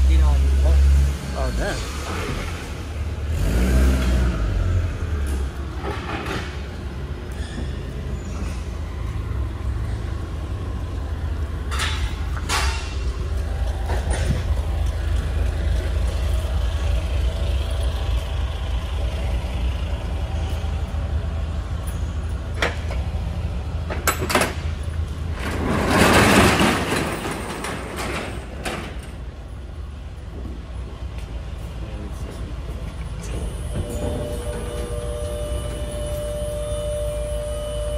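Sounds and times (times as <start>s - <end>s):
forklift and truck engines rumbling: 0.0s - 37.9s
sharp metal clanks: 11.7s - 13.2s.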